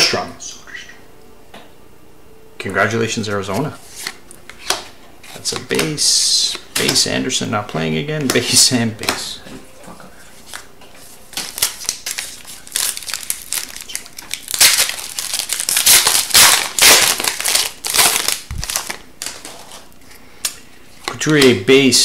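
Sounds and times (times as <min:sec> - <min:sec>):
card pack wrapper crinkling: 0:11.3 - 0:19.9.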